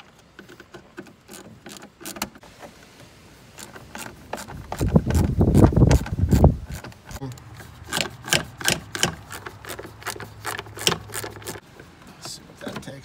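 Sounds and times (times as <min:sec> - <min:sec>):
nut driver clicking on screws: 0:00.1 - 0:02.4, 0:03.6 - 0:11.6
rubbing and knocking: 0:03.5 - 0:13.0.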